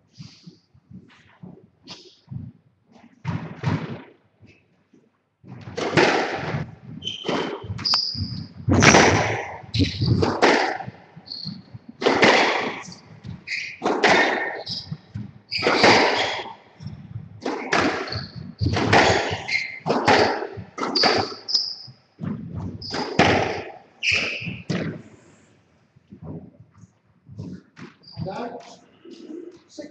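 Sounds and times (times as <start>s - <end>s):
shoes squeaking on wooden floor: 6.5s - 25.2s, 26.1s - 29.7s.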